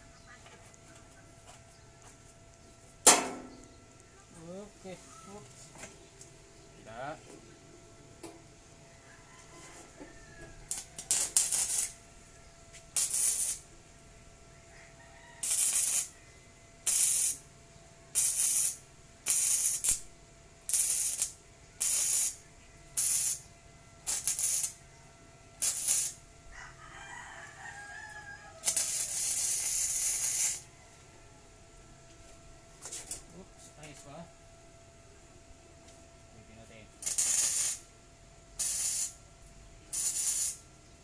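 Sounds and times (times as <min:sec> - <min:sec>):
welder arc crackling: 0:10.6 - 0:12.0, 0:12.8 - 0:13.7, 0:15.4 - 0:16.1, 0:16.8 - 0:17.4, 0:18.1 - 0:22.4, 0:23.0 - 0:23.4, 0:24.0 - 0:24.8, 0:25.6 - 0:26.2, 0:28.6 - 0:30.7, 0:37.0 - 0:37.9, 0:38.6 - 0:39.2, 0:39.9 - 0:40.6.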